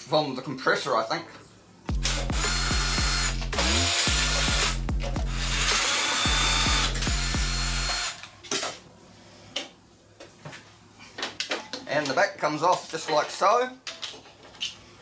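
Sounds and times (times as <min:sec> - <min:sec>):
cordless drill running: 0:02.0 - 0:08.2.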